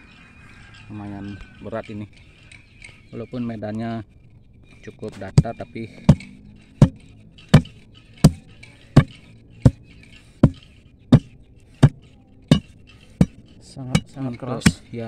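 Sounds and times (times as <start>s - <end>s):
steel bar striking stony soil: 5.0s - 15.0s.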